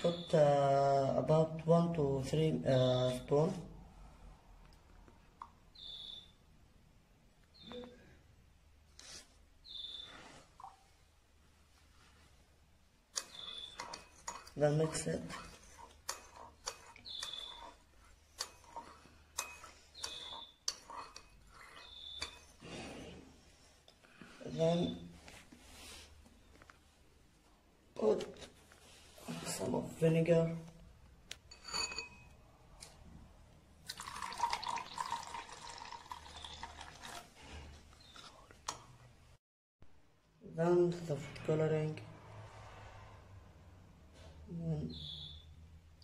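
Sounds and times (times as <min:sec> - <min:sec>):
spoon clinking against ceramic bowl: 0:18.4 - 0:22.5, 0:31.5 - 0:32.4
liquid poured into a bowl: 0:33.8 - 0:37.5.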